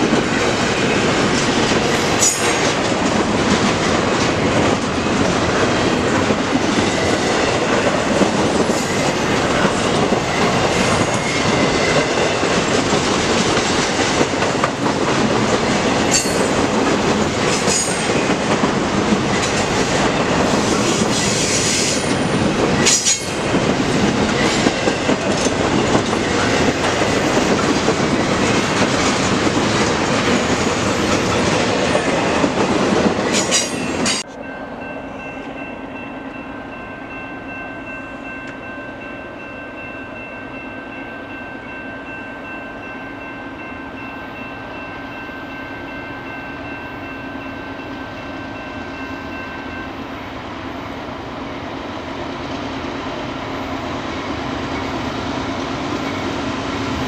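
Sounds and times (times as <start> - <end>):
freight train wheels clattering: 0.0 - 34.4
train rumble with low hum: 0.0 - 44.0
train approaching: 0.0 - 57.0.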